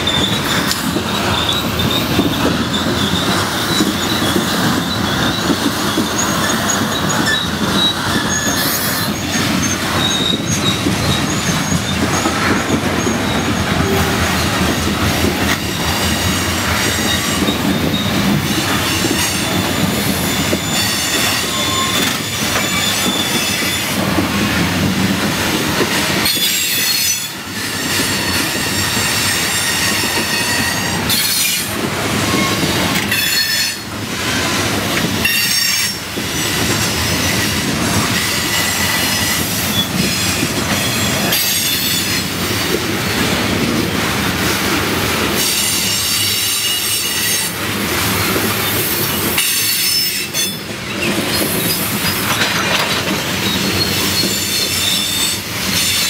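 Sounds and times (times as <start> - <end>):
high-pitched wheel squeal: 0.0 - 14.7, 15.7 - 24.0, 26.2 - 31.7, 53.4 - 56.0
train wheels clicking over rail: 48.0 - 56.0.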